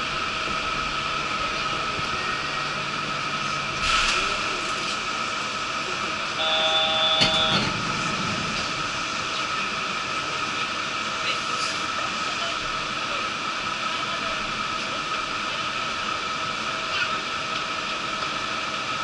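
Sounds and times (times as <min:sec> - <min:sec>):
train electric hum: 0:00.0 - 0:19.0
high steady tones: 0:06.4 - 0:07.7.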